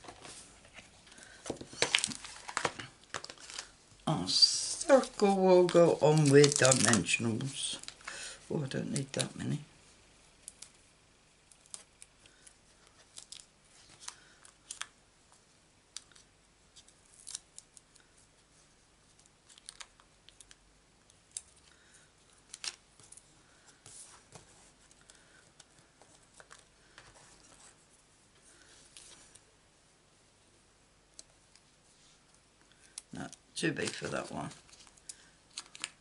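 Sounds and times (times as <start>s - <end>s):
paper clicks and rustles: 0.0s - 3.7s, 4.8s - 8.2s, 33.6s - 36.0s.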